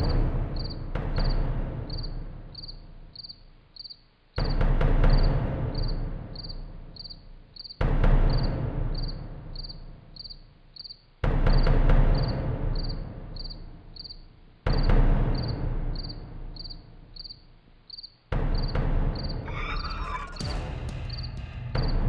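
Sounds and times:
deep booming hits: 0.0 - 3.0, 18.4 - 22.0
crickets chirping: 0.0 - 22.0
dark suspense music: 0.0 - 22.0.

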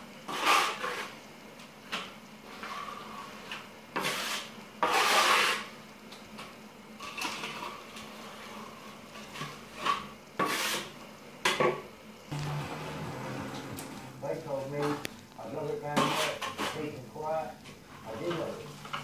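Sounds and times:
trowel scraping wet plaster: 0.3 - 1.1, 4.0 - 5.7, 10.4 - 10.9, 15.9 - 17.0.

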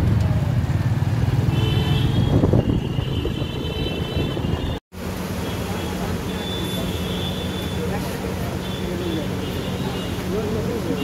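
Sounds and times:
motorcycle rumbling on road: 0.0 - 10.8
street noise: 0.0 - 11.0.

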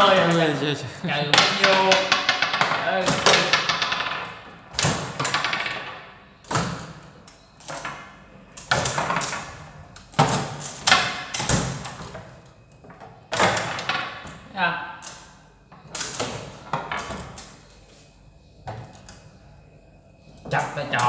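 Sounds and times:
foosball rods rattling: 1.3 - 14.4.

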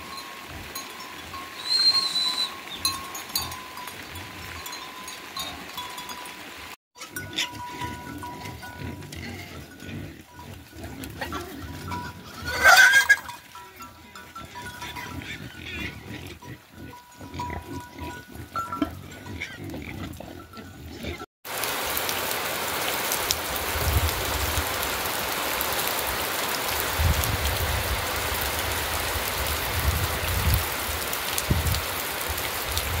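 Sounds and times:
rain hissing: 0.0 - 6.8, 21.5 - 33.0
pig squealing: 1.6 - 2.5, 8.8 - 13.3, 14.4 - 21.3
pigs feeding: 7.0 - 21.2.

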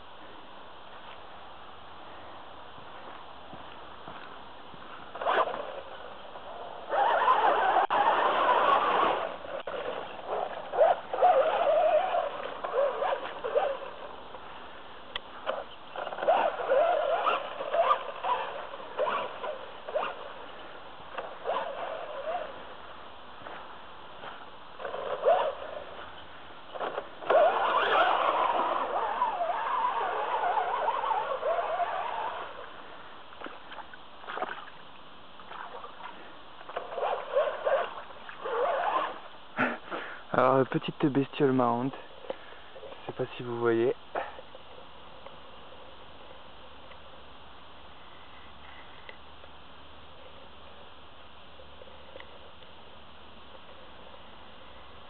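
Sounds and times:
water splashing: 33.3 - 39.3.

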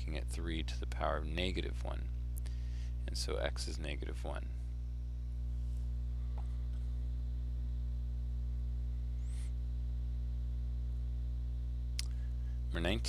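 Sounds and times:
low electrical hum: 0.0 - 13.0
faint click: 11.9 - 12.2.

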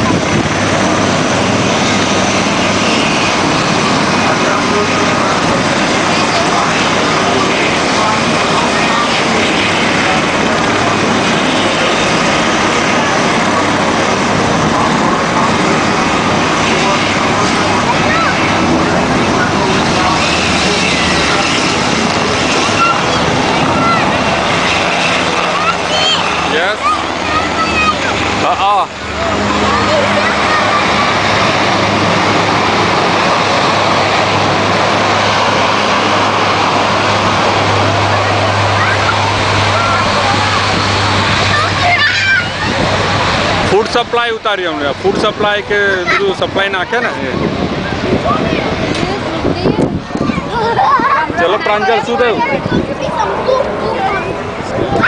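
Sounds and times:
jet aircraft flying overhead: 0.0 - 55.0.

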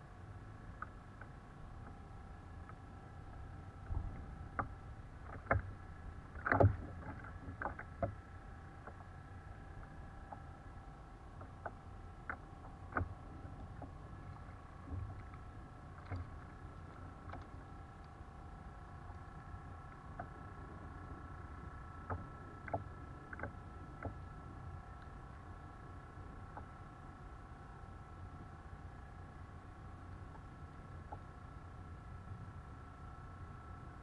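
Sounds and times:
faint high-pitched hum: 0.0 - 34.0
clicks of fishing rod and reel: 3.9 - 5.7, 6.3 - 9.1, 21.7 - 25.2.

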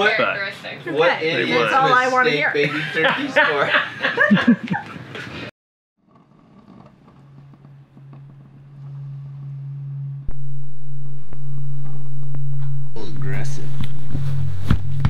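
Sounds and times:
steady low hum: 6.1 - 15.0.

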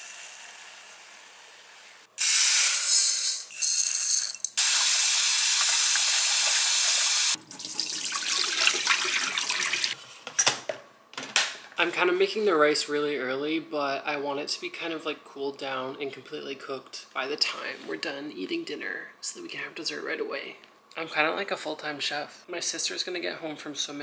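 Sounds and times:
faucet running into pot: 2.2 - 10.0.

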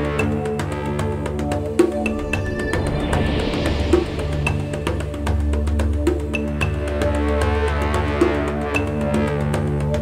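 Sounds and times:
instrumental music with steady beat: 0.0 - 10.0
hissing wash: 2.0 - 6.3.

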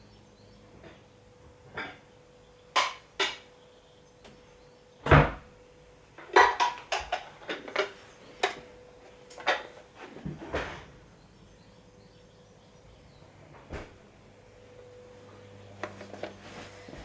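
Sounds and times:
crockery bowls clattering: 6.3 - 8.6.

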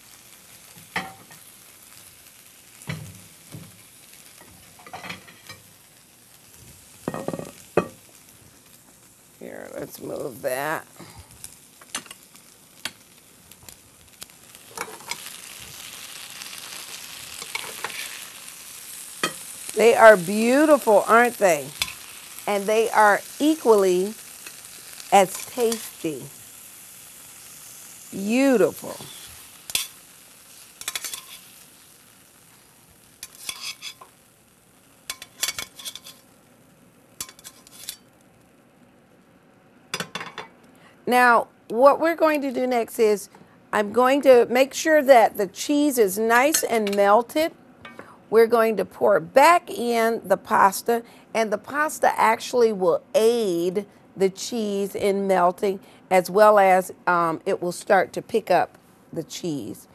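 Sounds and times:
beans sizzling in a skillet: 0.0 - 38.7, 39.9 - 50.9, 51.6 - 59.9
metal tongs clinking on a pan: 4.4 - 5.7, 14.8 - 15.4, 17.4 - 18.2, 19.2 - 19.4, 20.6 - 22.1, 25.2 - 26.0, 29.7 - 30.0, 30.8 - 31.5, 33.2 - 34.1, 35.1 - 36.2, 37.2 - 38.1.

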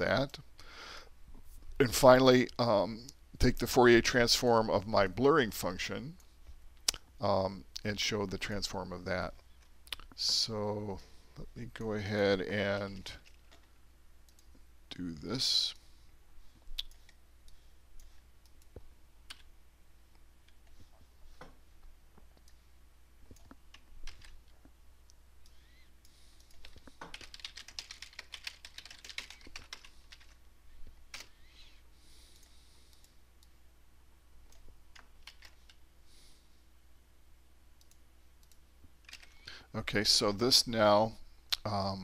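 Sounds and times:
faint typing on keyboard: 9.3 - 19.5, 20.1 - 33.6, 34.4 - 35.9, 37.8 - 39.8.

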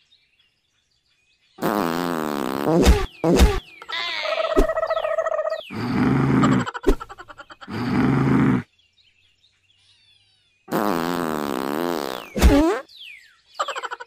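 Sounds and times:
cartoon fart sounds: 1.6 - 3.8, 4.5 - 5.0, 5.7 - 8.7, 10.7 - 12.9
sharp loud pop: 2.8 - 3.6, 12.4 - 12.7.

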